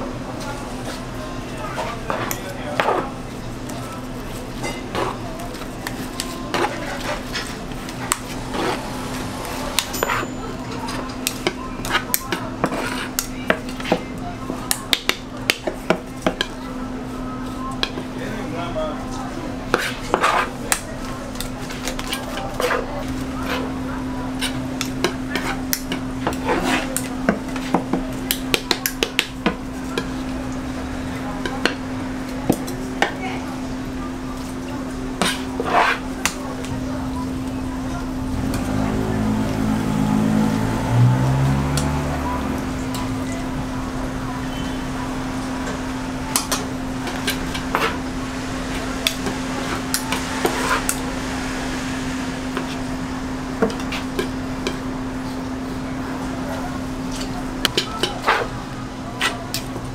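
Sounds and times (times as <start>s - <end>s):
steady low hum: 0.0s - 59.9s
metal scraper on cutting board: 19.7s - 20.6s, 35.2s - 36.0s.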